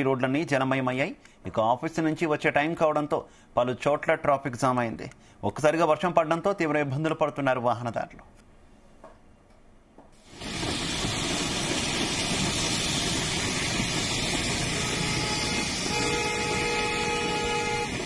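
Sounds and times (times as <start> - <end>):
heavy rain on a road: 10.3 - 18.0
traffic: 13.2 - 18.0
vehicle horn: 14.5 - 18.0.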